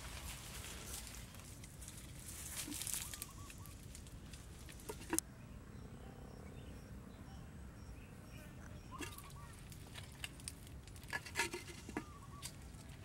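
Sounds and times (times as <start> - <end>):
leaves and twigs rustling: 0.0 - 5.2, 8.9 - 13.0
faint high bird calls: 2.7 - 4.0, 5.8 - 9.8, 11.9 - 13.0
bird chirps: 3.0 - 3.8, 5.3 - 9.6, 12.0 - 12.7.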